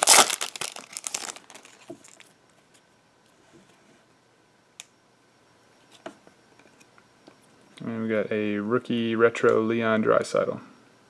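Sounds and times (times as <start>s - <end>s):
foil wrapper rustling: 0.0s - 2.2s.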